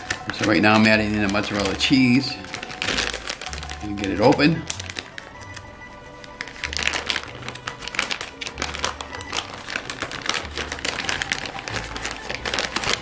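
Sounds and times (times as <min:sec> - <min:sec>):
packaging crinkling: 0:00.0 - 0:13.0.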